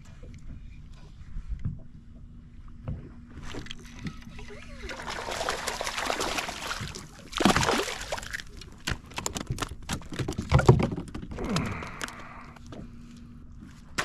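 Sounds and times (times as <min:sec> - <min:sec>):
fish splashing at surface: 0:04.9 - 0:08.6
knocks and clatters on kayak: 0:08.8 - 0:11.8.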